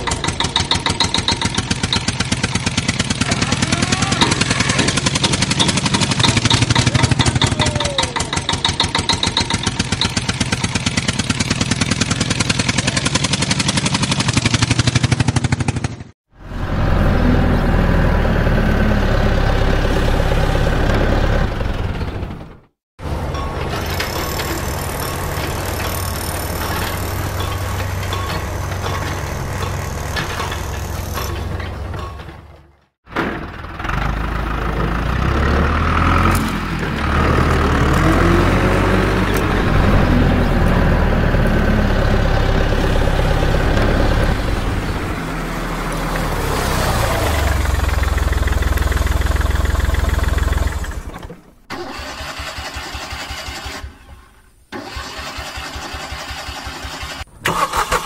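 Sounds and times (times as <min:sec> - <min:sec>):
heavy vehicle engine running: 0:00.0 - 0:32.7, 0:33.3 - 0:53.8.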